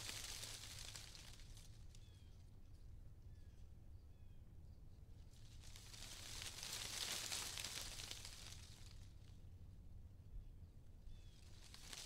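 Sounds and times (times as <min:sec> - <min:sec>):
wind rustling leaves: 0:00.0 - 0:02.1, 0:05.3 - 0:09.4, 0:11.1 - 0:12.0.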